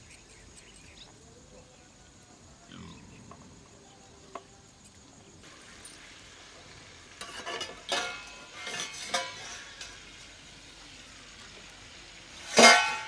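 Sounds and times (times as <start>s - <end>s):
food sizzling: 5.4s - 13.0s
spatula and lid clattering on pan: 7.1s - 10.2s, 12.4s - 13.0s.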